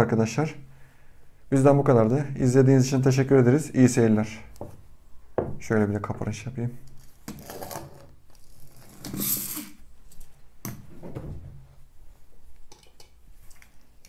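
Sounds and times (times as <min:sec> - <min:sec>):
toy scooter gears whirring: 0:09.1 - 0:09.8.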